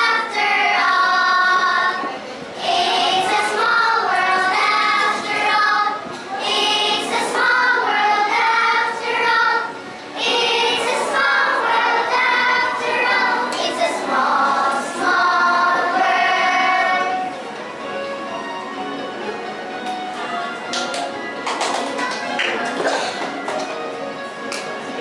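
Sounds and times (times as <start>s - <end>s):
girls singing together: 0.0s - 17.4s.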